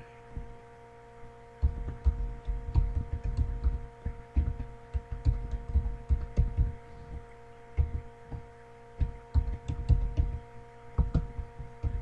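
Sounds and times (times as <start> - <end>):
electrical hum: 0.0 - 12.0
computer keyboard typing: 1.6 - 7.2, 7.8 - 8.4, 9.0 - 10.4.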